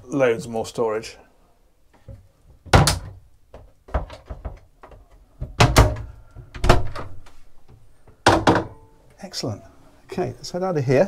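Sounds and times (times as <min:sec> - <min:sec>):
cupboard door thudding shut: 0:02.7 - 0:03.2, 0:08.3 - 0:08.8.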